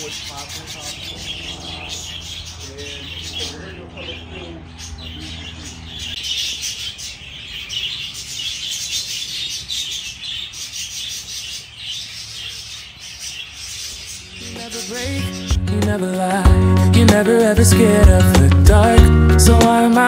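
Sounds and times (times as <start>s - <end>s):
flock of parakeets chattering: 0.0s - 16.0s.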